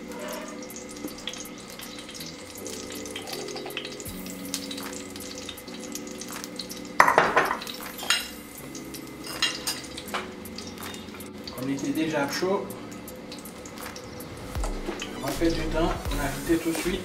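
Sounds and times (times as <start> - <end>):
oil crackling and spitting in pan: 0.0 - 17.0.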